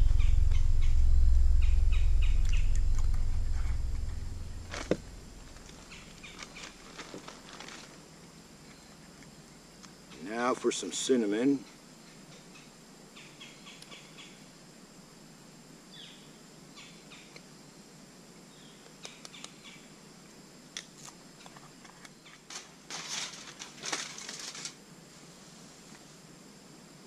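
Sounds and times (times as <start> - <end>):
aluminum foil crinkling: 4.7 - 8.0, 22.5 - 24.8.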